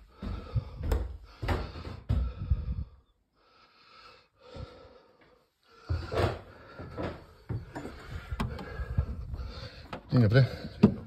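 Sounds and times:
footsteps on wooden stairs: 0:00.0 - 0:02.8, 0:05.8 - 0:11.0
person breathing: 0:00.0 - 0:11.0.

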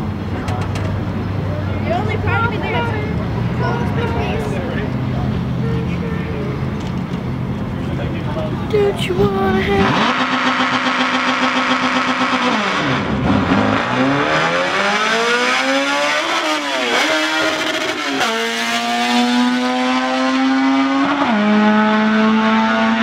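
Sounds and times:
racing car engine accelerating: 0:09.6 - 0:23.0.

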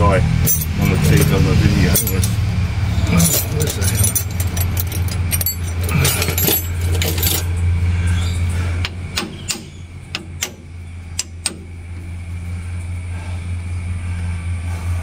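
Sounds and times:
low engine hum: 0:00.0 - 0:15.0
spanner clinking and ratcheting: 0:00.4 - 0:07.8, 0:08.8 - 0:12.0.

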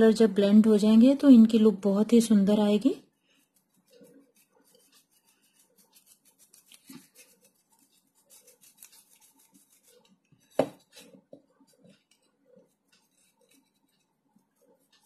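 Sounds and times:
paintbrush bristles scratching: 0:03.0 - 0:15.0
knock: 0:10.6 - 0:10.8.

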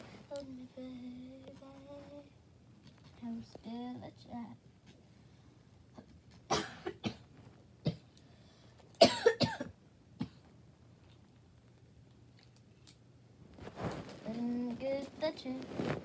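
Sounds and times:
girl coughing: 0:06.5 - 0:08.1, 0:09.0 - 0:10.4.

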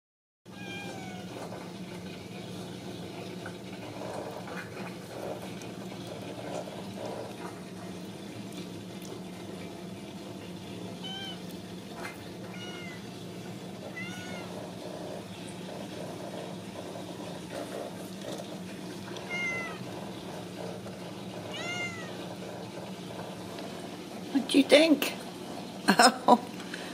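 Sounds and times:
kittens mewing: 0:00.5 - 0:01.6, 0:11.0 - 0:11.5, 0:12.4 - 0:13.2, 0:13.8 - 0:14.7, 0:19.2 - 0:19.9, 0:21.5 - 0:22.3.

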